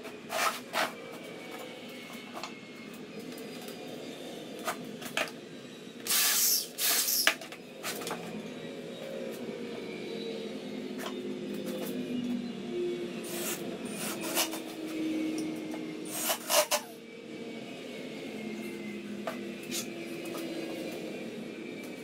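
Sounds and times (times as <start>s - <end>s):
electric drill boring into wood: 6.0s - 7.4s, 13.3s - 14.6s.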